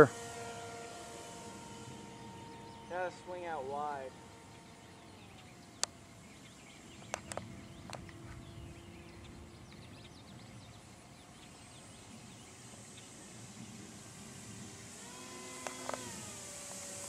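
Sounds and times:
electric motor whine: 0.0s - 17.0s
sharp clicks: 7.0s - 8.2s, 15.5s - 16.2s.

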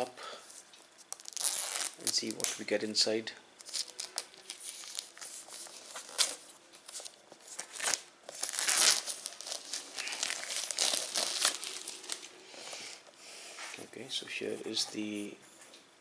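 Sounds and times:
plastic wrap crinkling and tearing: 1.0s - 2.7s, 3.6s - 12.3s.

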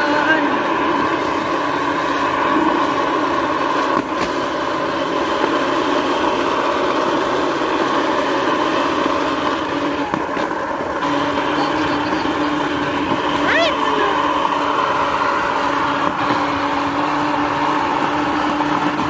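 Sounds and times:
rail cart engine running: 0.0s - 19.0s.

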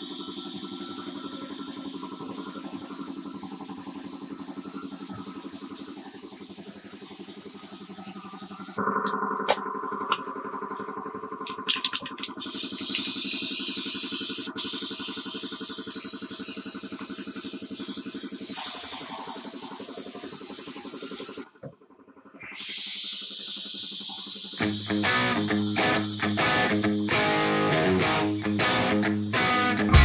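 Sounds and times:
aerosol can spraying hiss: 12.4s - 21.5s, 22.5s - 30.0s.

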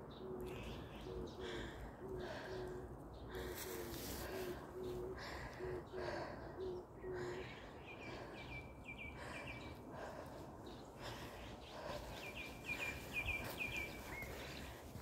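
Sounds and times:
songbird chirping: 0.0s - 15.0s
footsteps on leafy dirt trail: 11.8s - 15.0s.

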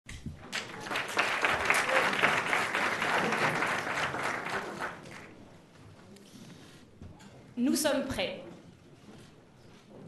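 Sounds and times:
audience applauding: 0.4s - 5.4s.

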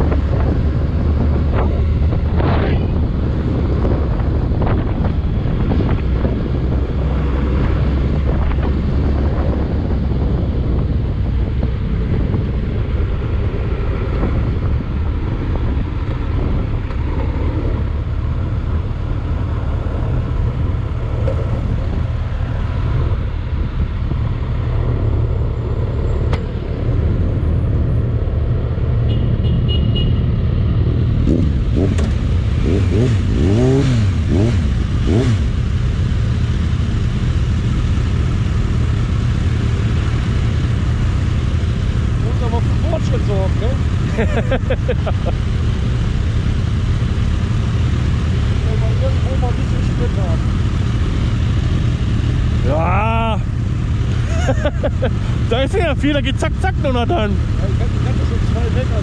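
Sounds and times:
rushing noise: 0.0s - 10.8s
vehicle engine and road rumble: 0.0s - 59.0s
engine revving: 31.1s - 59.0s.

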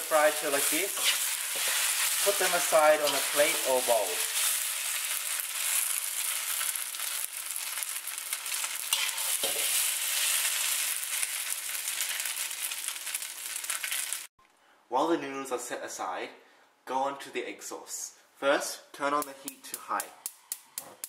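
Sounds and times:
metal spatula scraping wok: 0.0s - 7.3s, 8.5s - 12.4s
noodles sizzling in oil: 0.0s - 14.3s.

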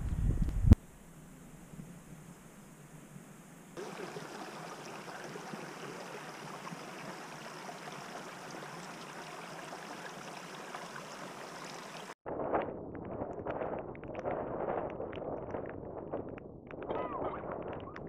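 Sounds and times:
water rushing over rocks: 3.8s - 12.2s.

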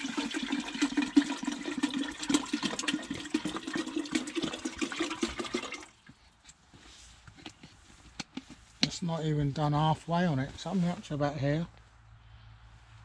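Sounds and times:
water gurgling into metal tank: 0.0s - 6.0s.

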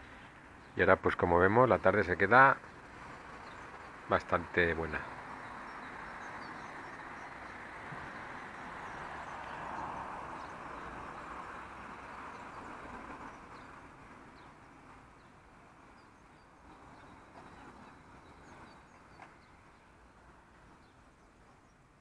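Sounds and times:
distant rushing noise: 1.4s - 21.1s.

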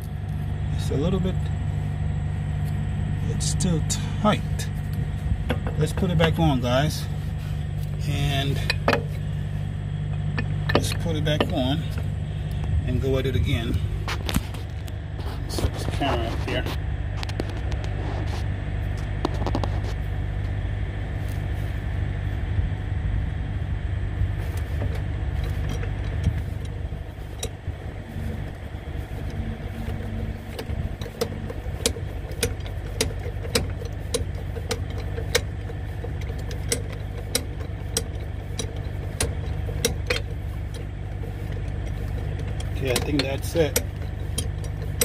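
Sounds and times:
engine idling: 0.0s - 45.0s
lug wrench clicking: 7.8s - 9.4s, 10.1s - 12.7s, 24.4s - 45.0s.

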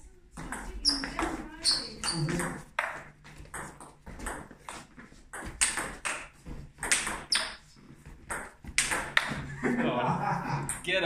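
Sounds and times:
table tennis ball hits: 0.4s - 7.6s, 8.2s - 9.5s.

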